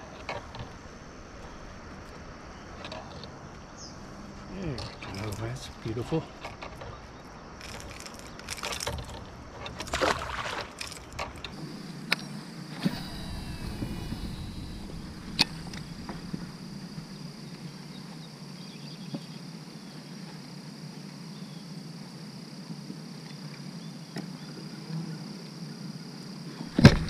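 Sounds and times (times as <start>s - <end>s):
insects buzzing: 0.0s - 27.0s
low hum: 10.8s - 18.1s.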